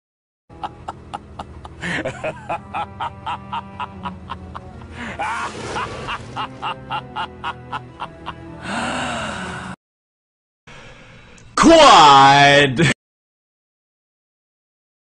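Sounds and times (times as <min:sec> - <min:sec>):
evil laugh: 0:00.5 - 0:08.8
background music: 0:00.5 - 0:09.8.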